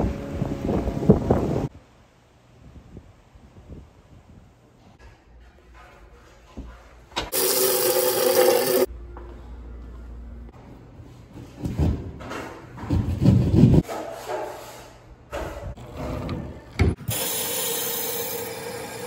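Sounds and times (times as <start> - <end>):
hand tool scraping and rubbing: 12.9 - 16.1.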